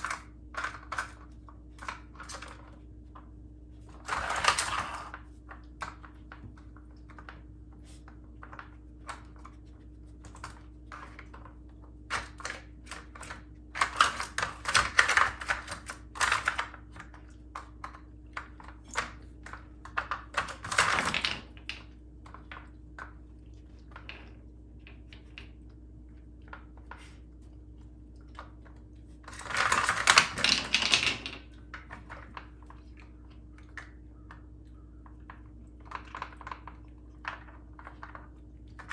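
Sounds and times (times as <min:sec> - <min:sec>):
plastic pieces rattling: 0:29.3 - 0:32.4.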